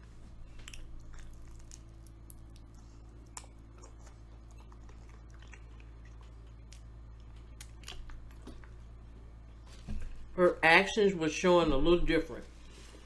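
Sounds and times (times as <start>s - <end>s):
person chewing food: 0.0s - 9.7s
steady low hum: 0.0s - 13.0s.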